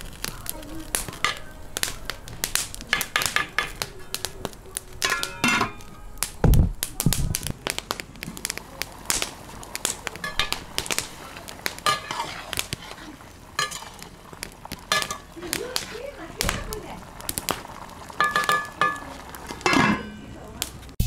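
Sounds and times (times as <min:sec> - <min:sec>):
wood fire crackling: 0:00.0 - 0:21.0
metal pot lid clanks: 0:05.0 - 0:05.9, 0:10.2 - 0:10.7, 0:11.8 - 0:13.0, 0:13.6 - 0:14.0, 0:14.9 - 0:15.9, 0:18.1 - 0:20.3.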